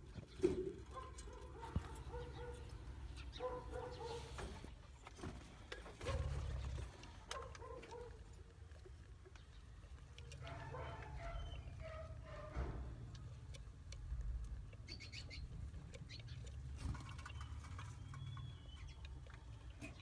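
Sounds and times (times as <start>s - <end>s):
budgerigars chirping: 14.7s - 20.0s.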